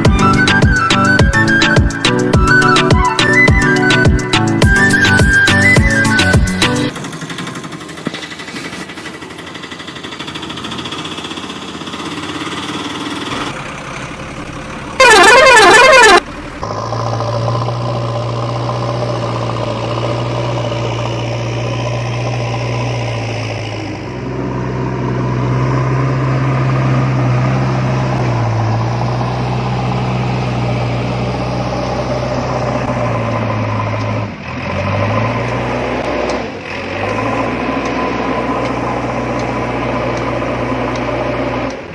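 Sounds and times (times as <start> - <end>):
warbling siren-like toy horn: 15.0 - 16.2.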